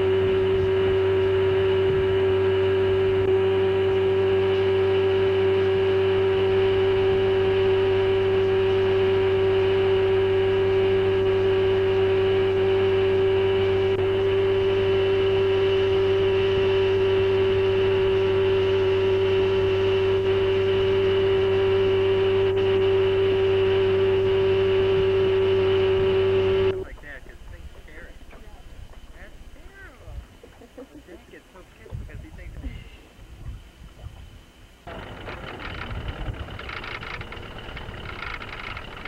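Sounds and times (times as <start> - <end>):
boat engine droning: 0.0 - 39.0.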